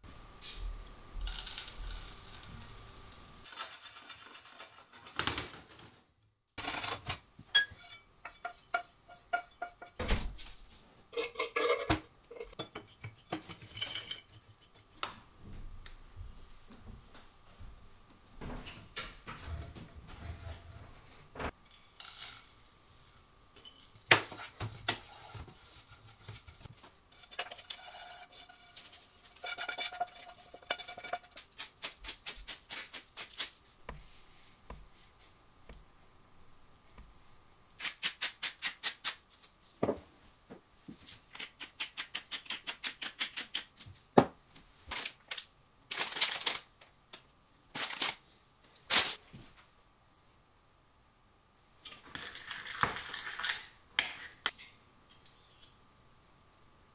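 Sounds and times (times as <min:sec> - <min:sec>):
scrapes and knocks: 0:06.6 - 0:15.1, 0:18.4 - 0:22.6, 0:23.6 - 0:35.0
wooden spatula stirring: 0:24.2 - 0:35.2.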